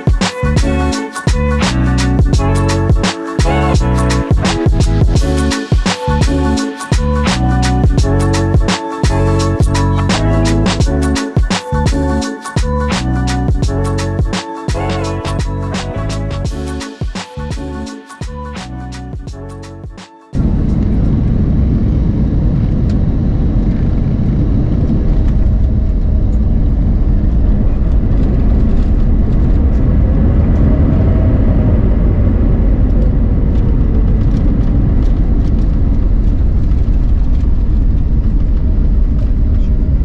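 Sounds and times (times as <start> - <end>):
airplane cabin rumble: 0.0 - 40.0
faint whine: 20.4 - 40.0.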